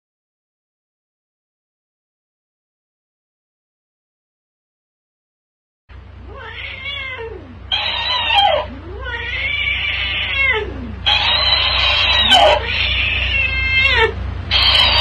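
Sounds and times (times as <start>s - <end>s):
cat yowling: 6.3s - 15.0s
toy playing back yowls: 7.7s - 15.0s.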